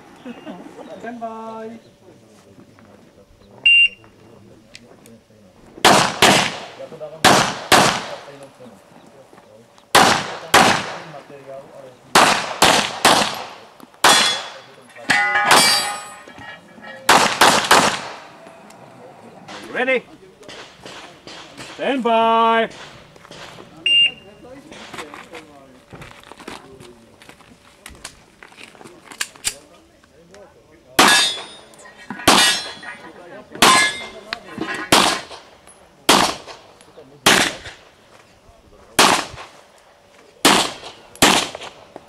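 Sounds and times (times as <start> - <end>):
pistol shots: 5.8 - 8.4, 9.9 - 11.2, 12.1 - 14.7, 17.1 - 18.4, 31.0 - 31.6, 32.2 - 32.8, 34.9 - 35.5, 36.1 - 37.8, 39.0 - 39.6, 40.4 - 41.8
steel target clanging: 14.0 - 18.4, 31.0 - 35.4.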